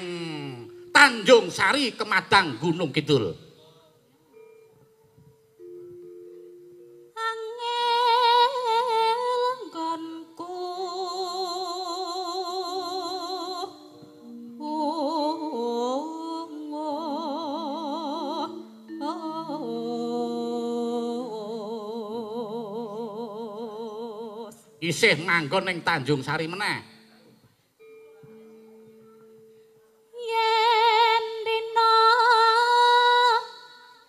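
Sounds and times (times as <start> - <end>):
held instrumental notes: 0.0 - 34.0
woman singing with vibrato: 7.1 - 24.8, 30.0 - 34.0.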